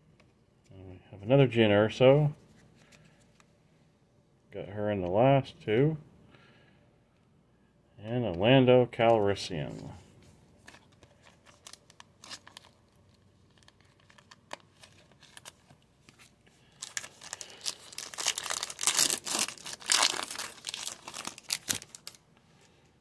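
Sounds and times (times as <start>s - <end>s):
foil wrapper crinkling and tearing: 10.6s - 22.2s.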